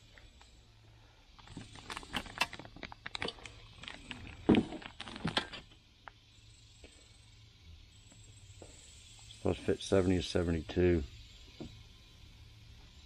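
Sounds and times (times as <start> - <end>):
packaging clicks and crinkles: 1.4 - 6.2.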